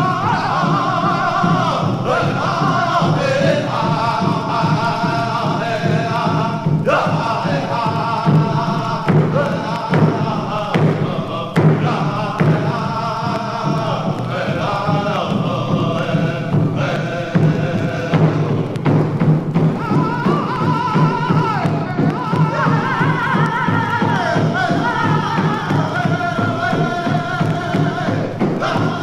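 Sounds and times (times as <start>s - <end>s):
slow steady drumbeat: 0.0s - 29.0s
voices chanting: 0.0s - 29.0s.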